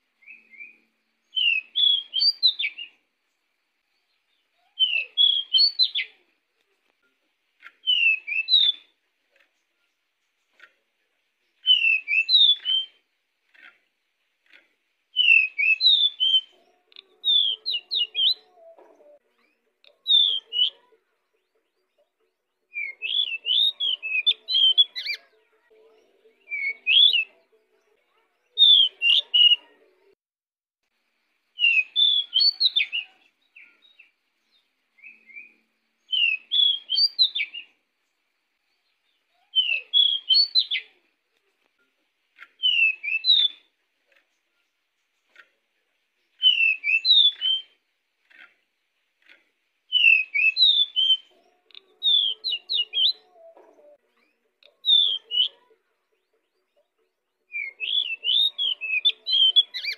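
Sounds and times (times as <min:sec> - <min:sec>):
bird singing chirpy notes: 0:00.0 - 0:06.3, 0:07.6 - 0:10.7, 0:11.3 - 0:14.0, 0:15.1 - 0:29.7, 0:31.6 - 0:41.2, 0:42.4 - 0:45.4, 0:46.2 - 0:59.9.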